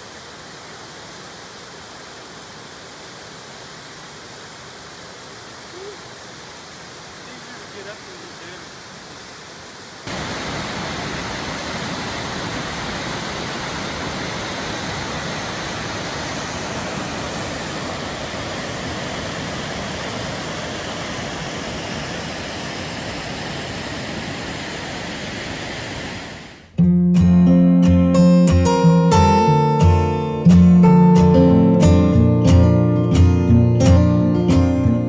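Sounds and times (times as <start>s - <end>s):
waterfall rushing: 0.0s - 26.7s.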